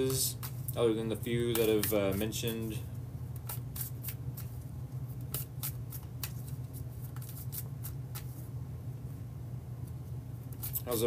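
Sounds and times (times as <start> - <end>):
cards being shuffled by hand: 0.0 - 0.8, 1.4 - 2.8, 3.4 - 8.5, 9.9 - 11.0
steady low hum: 0.0 - 11.0.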